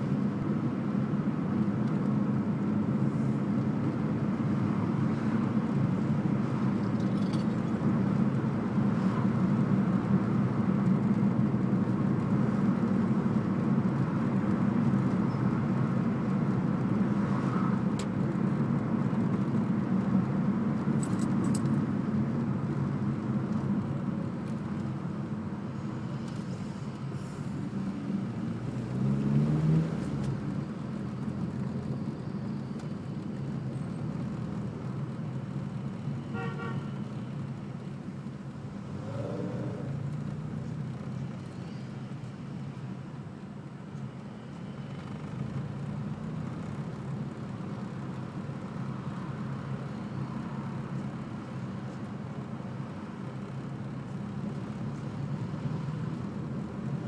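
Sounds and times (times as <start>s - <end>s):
car engine and road noise hum: 0.0s - 57.0s
engine speeding up: 28.4s - 30.5s, 38.8s - 40.3s.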